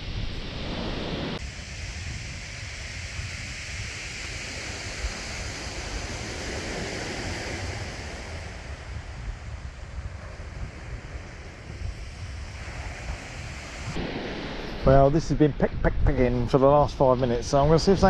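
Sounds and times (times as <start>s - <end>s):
surf breaking on shingle beach: 0.0s - 16.1s
wind rumbling on microphone: 0.0s - 18.0s.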